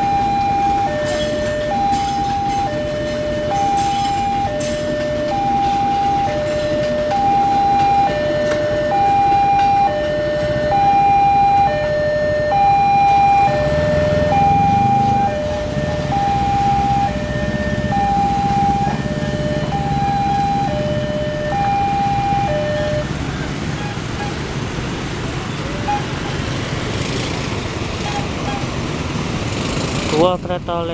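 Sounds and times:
level crossing two-tone alarm: 0.0s - 23.1s
vehicle engines running: 0.0s - 30.9s.

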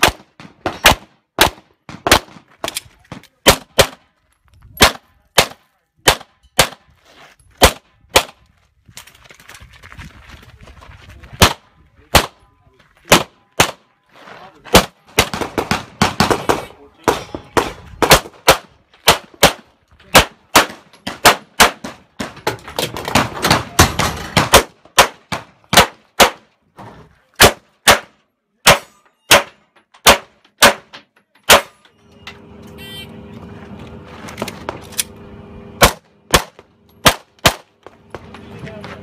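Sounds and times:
pistol shots: 0.0s - 2.8s, 3.4s - 4.0s, 4.8s - 6.8s, 7.6s - 8.4s, 11.4s - 12.4s, 13.1s - 13.9s, 14.7s - 22.0s, 23.5s - 26.5s, 27.4s - 30.9s, 31.5s - 31.8s, 35.8s - 37.8s
low hum: 31.6s - 39.0s.

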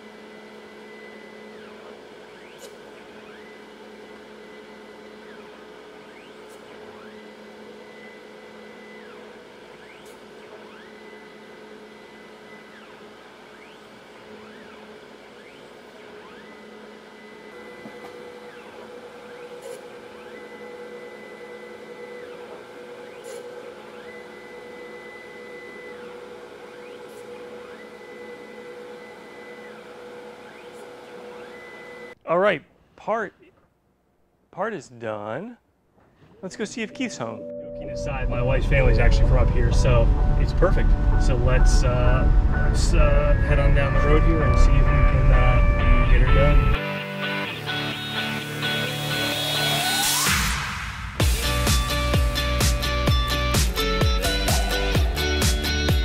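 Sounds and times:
grinder motor hum: 0.0s - 32.2s, 38.1s - 56.0s
high ringing grinding tone: 36.8s - 50.3s.

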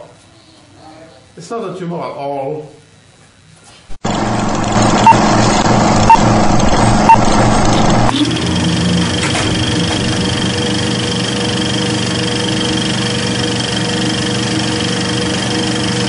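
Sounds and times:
machine-like hum: 4.0s - 16.0s.

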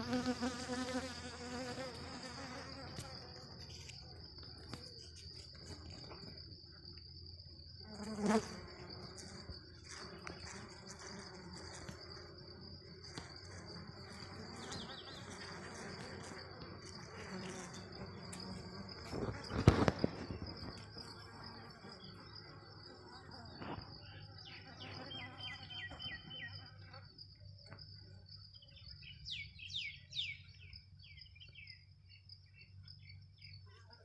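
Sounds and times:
insect trilling: 0.0s - 7.0s, 7.6s - 27.2s.

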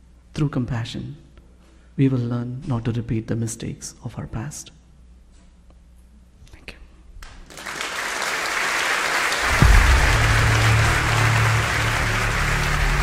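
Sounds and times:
audience applause: 7.4s - 13.0s
music with deep bass: 9.5s - 13.0s.

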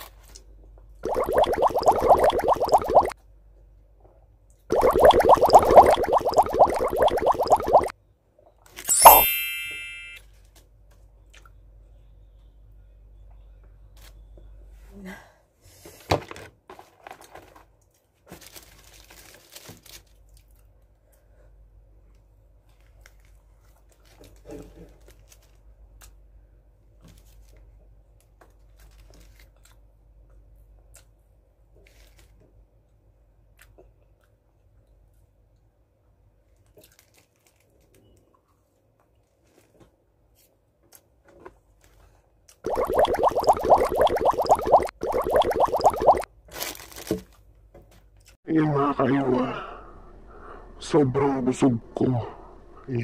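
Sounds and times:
paper wrappers crinkling and tearing: 18.3s - 20.2s, 46.5s - 47.4s.

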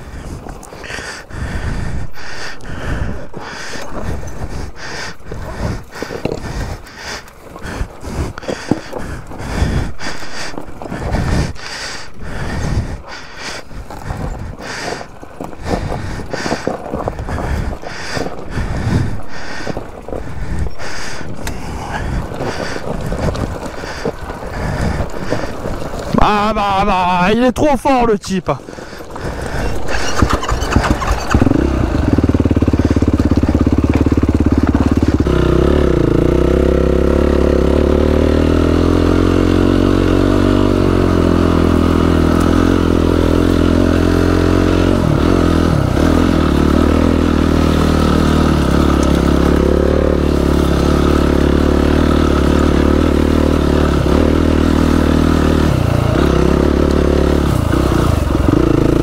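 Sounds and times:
loud quad engine revving: 29.2s - 59.0s.

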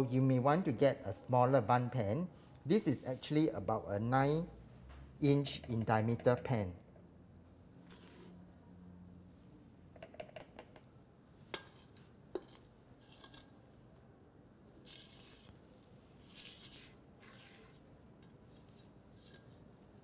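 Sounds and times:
spatula scraping metal bowl: 11.6s - 13.5s.

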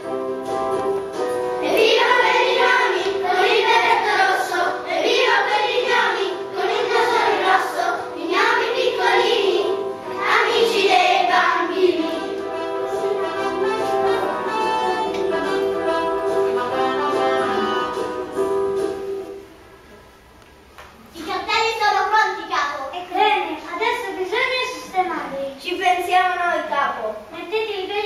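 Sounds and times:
instrumental music: 0.0s - 20.0s
children singing: 1.6s - 16.5s.

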